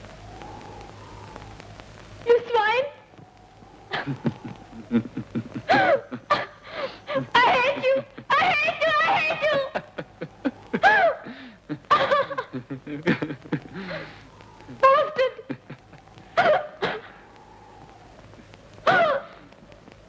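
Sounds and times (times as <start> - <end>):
high-pitched vocal cries: 5.7 - 12.5
clicks: 19.4 - 20.0.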